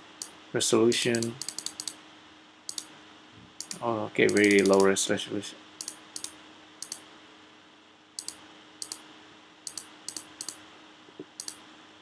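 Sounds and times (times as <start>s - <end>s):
faint steady hum: 0.0s - 12.0s
computer mouse clicking: 0.9s - 2.0s, 2.7s - 2.9s, 3.6s - 4.9s, 5.8s - 7.0s, 8.2s - 9.0s, 9.7s - 10.6s, 11.4s - 11.6s.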